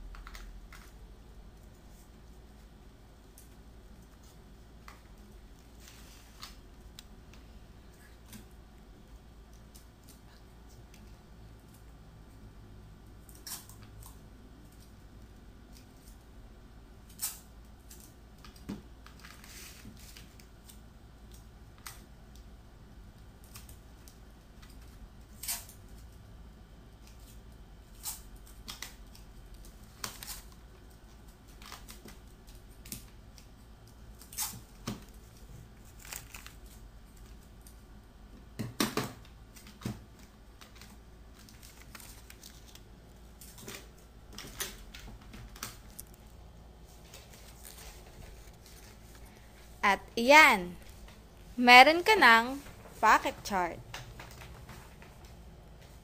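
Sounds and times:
plastic sheet crinkling: 35.2 - 37.5, 39.5 - 46.2, 46.8 - 49.7.

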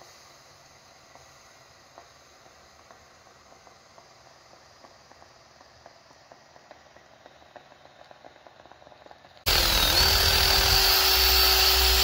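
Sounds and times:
garment steamer hissing: 0.0 - 7.1, 9.5 - 12.0
small pops and crackles: 1.9 - 9.5.

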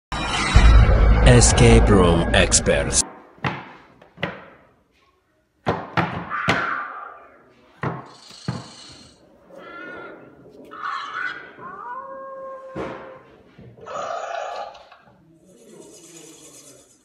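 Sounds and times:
rising electronic tone: 0.1 - 3.0.

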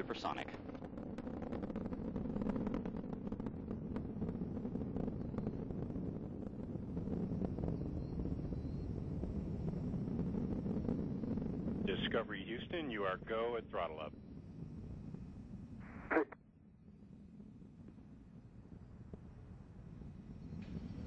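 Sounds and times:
rocket engines rumbling and crackling: 0.0 - 21.0.

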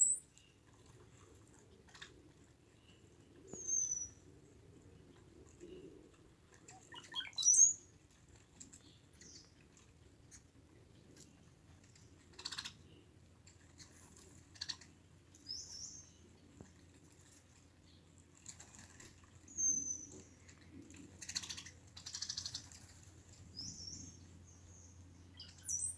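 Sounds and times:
bird dry chattering rattles: 13.7 - 14.9, 21.2 - 23.0.

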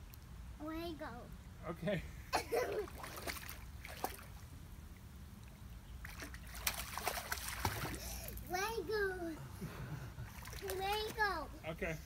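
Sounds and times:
water splashing in swimming pool: 2.5 - 5.0, 6.0 - 8.6, 10.2 - 11.6.

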